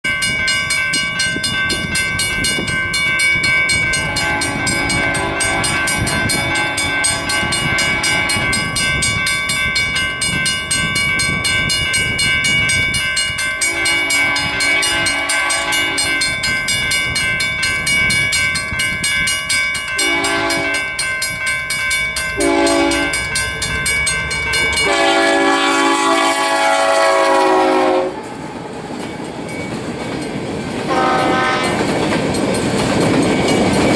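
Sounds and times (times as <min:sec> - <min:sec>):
crossing signal bell ringing: 0:00.0 - 0:33.9
locomotive air horn blasts: 0:04.0 - 0:08.6, 0:13.7 - 0:16.2, 0:20.0 - 0:20.8, 0:22.4 - 0:23.2, 0:24.8 - 0:28.3, 0:30.9 - 0:31.9.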